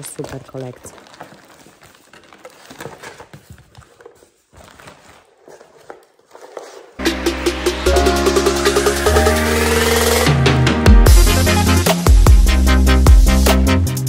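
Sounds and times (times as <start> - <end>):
plastic bags crinkling: 0.0 - 7.0
cardboard box scraping: 0.9 - 7.0
music with a beat: 7.0 - 14.0.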